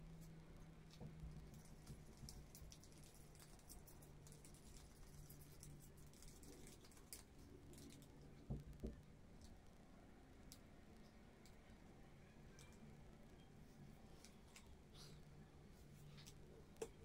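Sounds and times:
faint steady low hum: 0.0 - 17.0.

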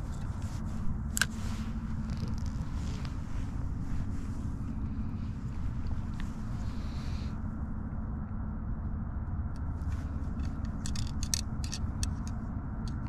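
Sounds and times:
light clicks and scrapes: 0.0 - 7.0, 9.6 - 13.0
steady low rumble: 0.0 - 13.0.

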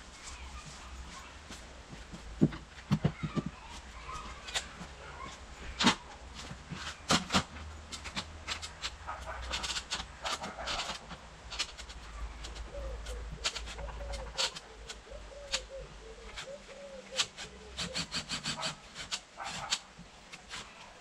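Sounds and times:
pigeon cooing: 9.1 - 19.8.

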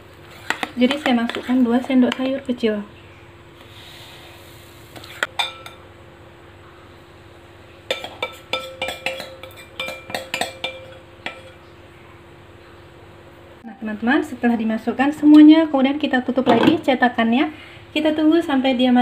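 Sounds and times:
faint steady hum: 0.0 - 19.0
ladle clinking against bowl: 7.9 - 11.6.

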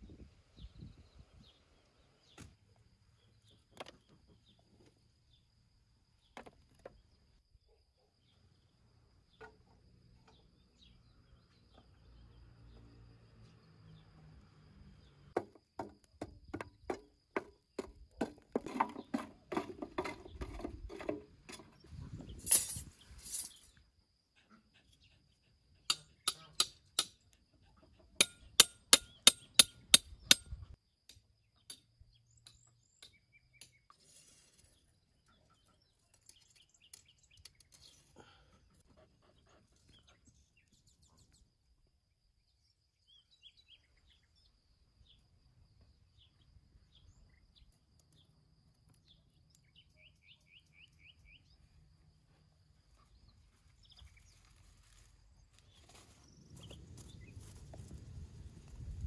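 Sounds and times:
sharp metallic clinks of ring fittings: 22.4 - 23.7.

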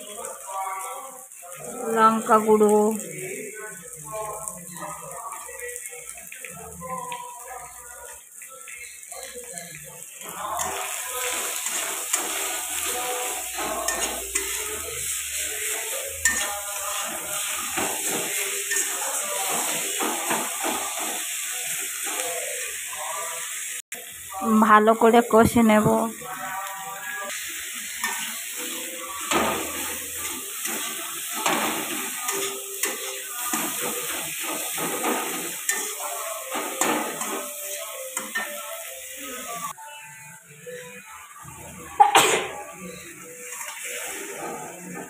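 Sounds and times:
food sizzling in a wok: 0.0 - 45.0
spatula clinking against pan: 13.2 - 14.8, 15.9 - 20.9, 30.6 - 38.7.

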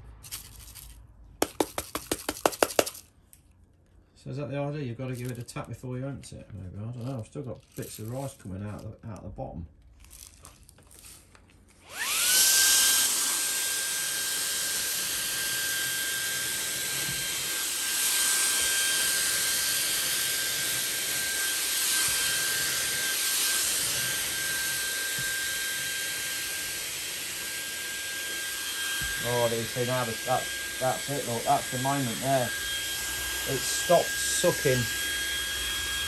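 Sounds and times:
handheld vacuum motor whining: 10.0 - 36.0
vacuum air rushing hiss: 17.7 - 36.0.

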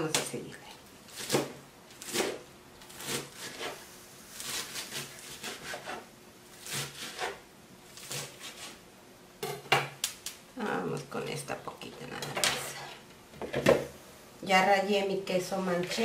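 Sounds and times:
knife chopping lettuce: 1.1 - 8.8.

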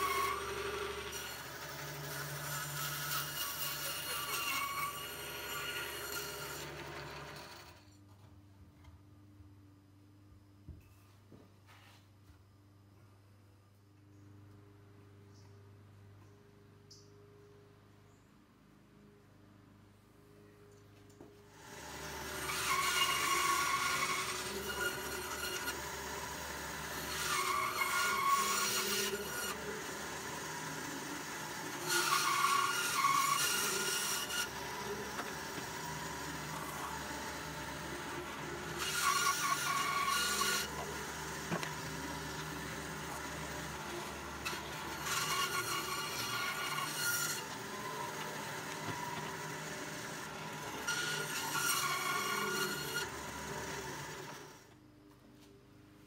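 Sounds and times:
bandsaw cutting board: 0.0 - 7.9, 21.5 - 54.6
bandsaw motor humming: 0.0 - 7.9, 21.5 - 54.6.

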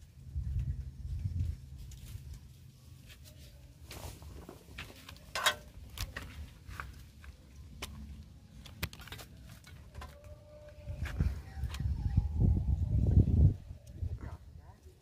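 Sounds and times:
low wind rumble on microphone: 0.0 - 2.4, 10.4 - 14.8.

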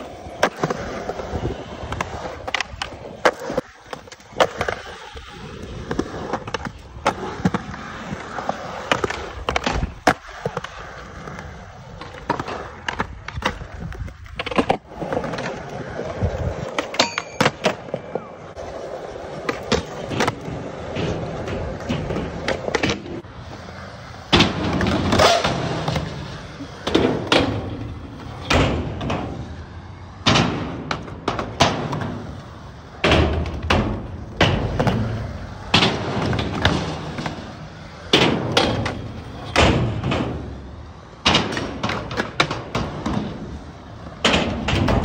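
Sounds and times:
skateboard clacks: 0.0 - 45.0
skateboard wheels rolling on concrete: 0.0 - 45.0.

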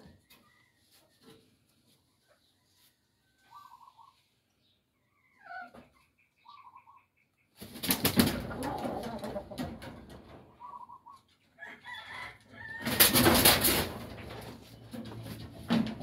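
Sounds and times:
rooster clucking: 8.1 - 16.0.

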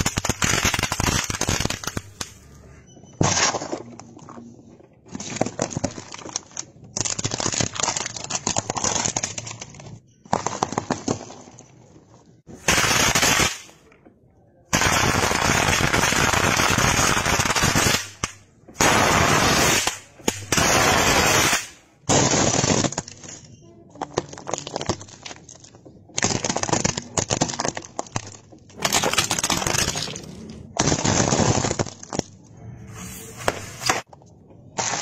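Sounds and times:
plastic crunching and breaking: 3.2 - 11.8, 22.1 - 32.5
objects crushed under car tyre: 22.0 - 32.5.

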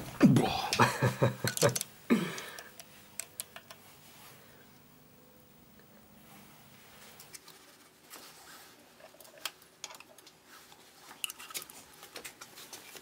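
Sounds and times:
metallic clicks of hand tools: 1.4 - 3.8.

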